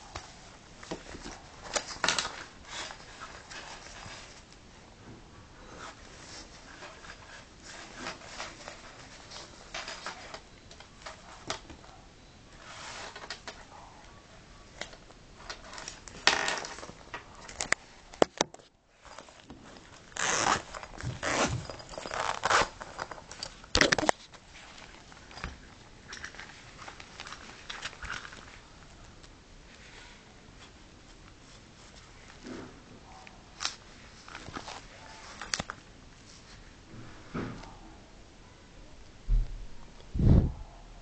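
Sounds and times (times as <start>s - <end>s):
fabric handling and rustling: 0.0s - 5.0s, 5.6s - 37.7s
bag zipper rasping: 20.2s - 23.4s.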